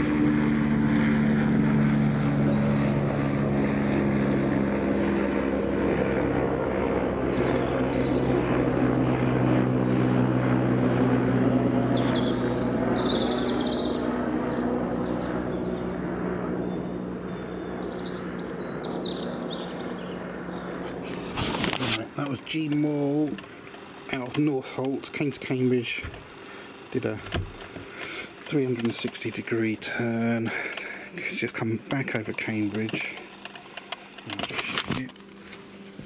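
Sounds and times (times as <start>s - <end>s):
helicopter rotor and turbine drone: 0.0s - 36.0s
small birds chirping: 1.5s - 3.8s, 7.0s - 10.0s, 11.2s - 34.6s.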